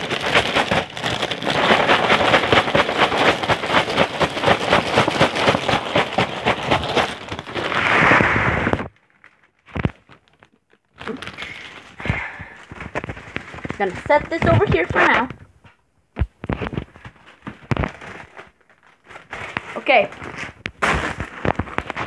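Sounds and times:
cereal pouring into a bowl: 0:00.0 - 0:08.9
plastic bag crinkling: 0:00.0 - 0:15.6, 0:16.2 - 0:22.0.

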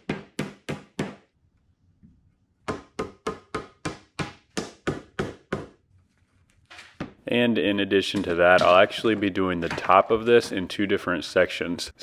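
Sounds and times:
rubber mallet knocking wood: 0:00.0 - 0:01.3, 0:02.6 - 0:05.8.

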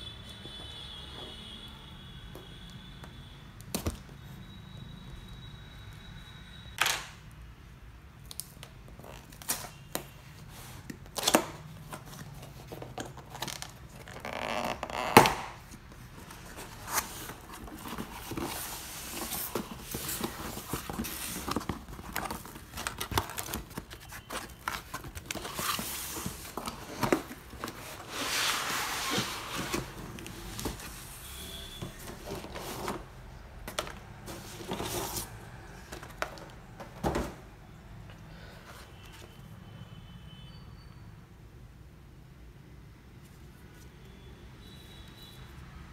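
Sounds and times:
cardboard scraping and tearing: 0:16.2 - 0:31.0.

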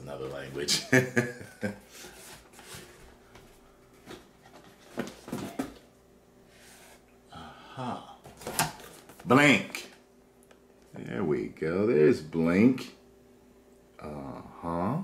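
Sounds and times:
cardboard rustling and scraping: 0:02.0 - 0:03.2, 0:04.0 - 0:05.9.

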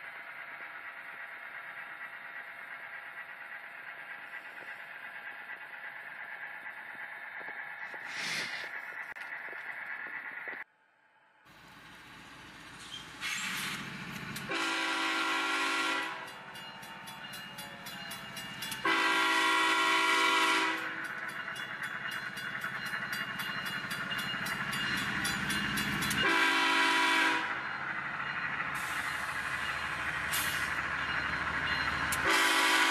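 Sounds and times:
diesel engine rumble: 0:00.0 - 0:10.6, 0:11.5 - 0:32.9
locomotive horn blasts: 0:14.4 - 0:16.3, 0:18.8 - 0:21.0, 0:26.2 - 0:27.6, 0:32.2 - 0:32.9.

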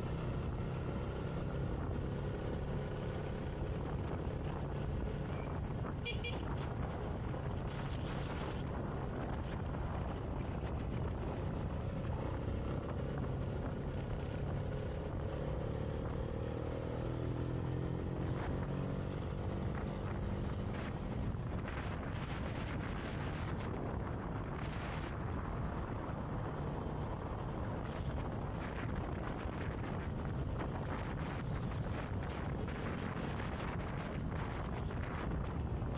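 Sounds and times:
motorcycle engine cruising: 0:00.0 - 0:35.9
wind rushing over microphone: 0:00.0 - 0:35.9.

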